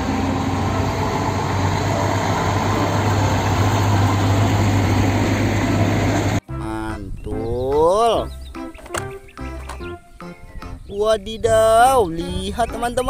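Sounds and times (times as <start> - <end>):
diesel truck engine droning: 0.0 - 6.4
road traffic noise: 0.0 - 6.4.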